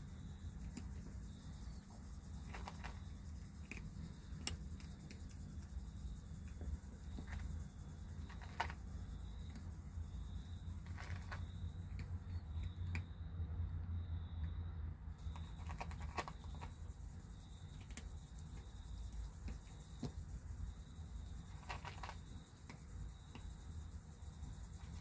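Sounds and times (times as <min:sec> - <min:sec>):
steady low hum: 0:00.0 - 0:25.0
small clicks and rustles: 0:00.6 - 0:05.8, 0:06.4 - 0:09.8, 0:10.8 - 0:13.1, 0:15.2 - 0:16.8, 0:21.4 - 0:23.6.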